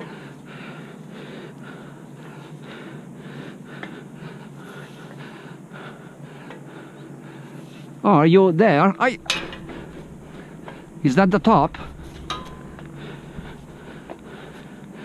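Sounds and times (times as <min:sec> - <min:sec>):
man breathing hard: 0:00.0 - 0:08.0, 0:11.9 - 0:15.0.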